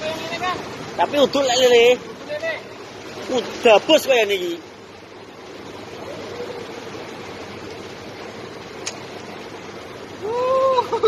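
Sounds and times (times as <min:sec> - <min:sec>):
flowing water rushing: 0:00.0 - 0:11.0
sharp click: 0:08.8 - 0:09.0.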